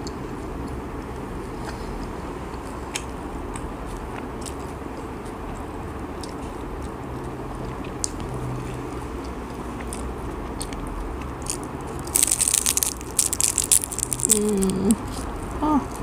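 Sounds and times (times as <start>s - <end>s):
crunching of crispy food: 9.2s - 16.0s.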